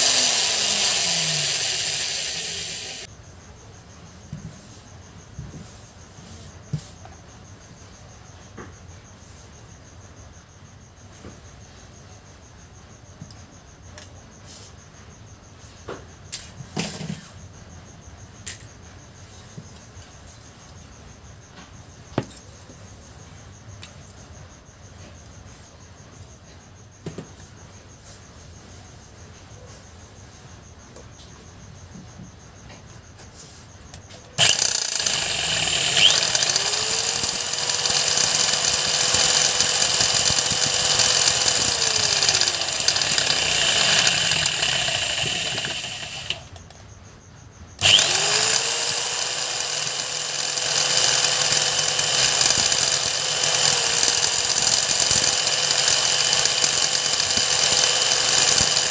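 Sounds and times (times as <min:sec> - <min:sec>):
electric drill whining: 0:00.0 - 0:03.1, 0:34.4 - 0:46.6, 0:47.8 - 0:58.9.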